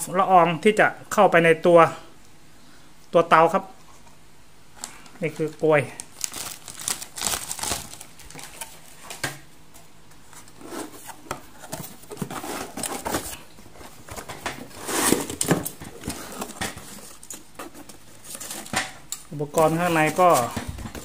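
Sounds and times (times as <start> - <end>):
plastic bag crinkling: 5.2 - 9.1
cardboard box rustling and scraping: 10.2 - 18.7, 19.6 - 21.0.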